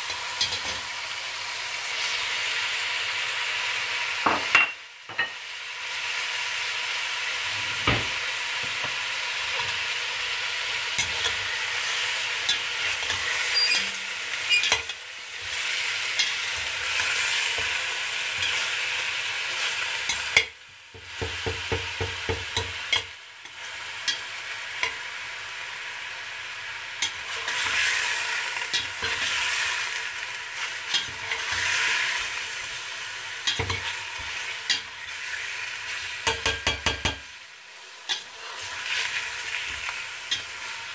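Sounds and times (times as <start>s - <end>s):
chicken sizzling in pot: 0.0s - 40.9s
metal spoon scraping pot: 12.5s - 14.9s.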